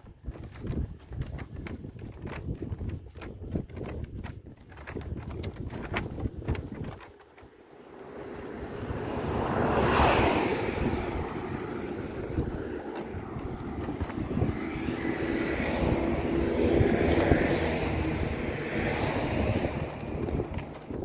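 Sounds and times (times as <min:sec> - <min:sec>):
low engine hum: 0:00.1 - 0:21.0
cars driving past: 0:07.5 - 0:21.0.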